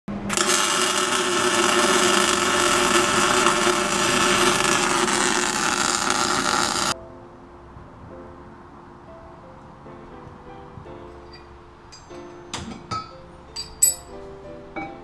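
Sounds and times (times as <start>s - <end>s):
arc welder crackling hiss: 0.1s - 7.0s.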